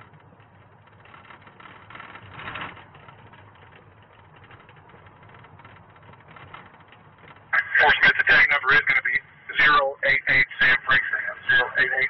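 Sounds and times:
car engine and tyre noise: 0.0 - 12.0.

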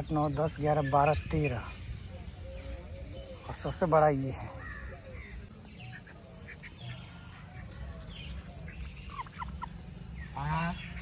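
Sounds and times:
fowl calls: 5.9 - 11.0
turkey gobbling: 6.6 - 11.0.

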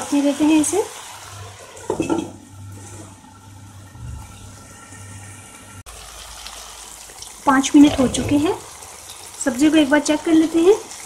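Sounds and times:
vegetables sizzling in oil: 0.0 - 2.7, 5.2 - 11.0.

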